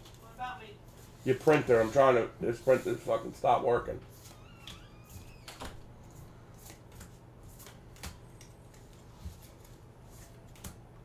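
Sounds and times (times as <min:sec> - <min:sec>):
trading cards flicked by hand: 0:04.2 - 0:11.0.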